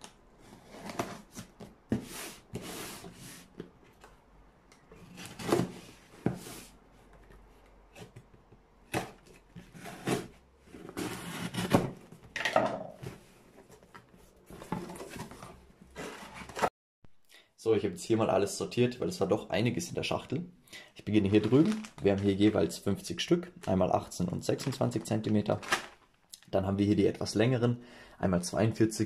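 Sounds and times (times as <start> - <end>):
cardboard scraping and rustling: 0.4 - 3.6, 5.0 - 8.2, 8.9 - 12.2, 13.0 - 16.7.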